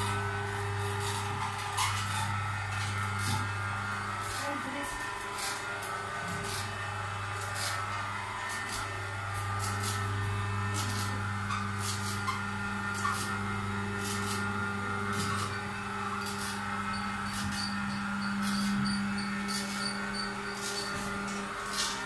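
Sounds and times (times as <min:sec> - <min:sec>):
electric motor humming: 0:00.0 - 0:22.0.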